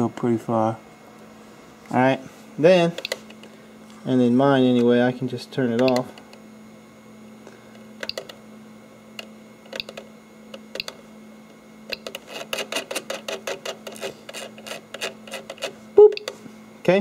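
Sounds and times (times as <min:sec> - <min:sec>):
steady low hum: 0:00.0 - 0:17.0
rotary knob clicking: 0:09.7 - 0:11.0.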